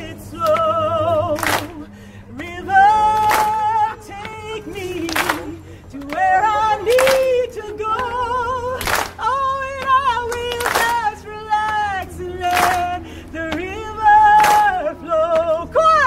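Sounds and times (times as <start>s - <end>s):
crowd singing: 0.0s - 16.0s
woman leading singing: 0.0s - 16.0s.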